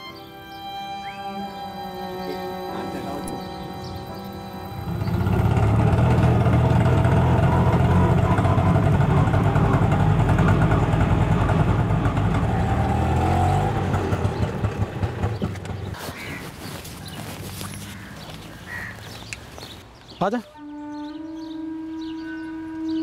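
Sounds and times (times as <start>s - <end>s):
auto-rickshaw engine throbbing: 0.0s - 16.4s.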